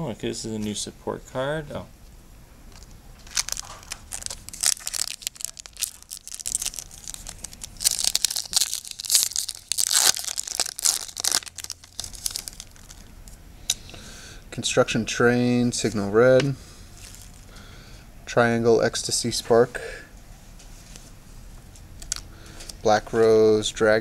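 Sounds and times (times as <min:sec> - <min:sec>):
wrapper rustling: 0:02.8 - 0:13.1, 0:17.0 - 0:17.6
foil pack tearing and crinkling: 0:03.2 - 0:13.1.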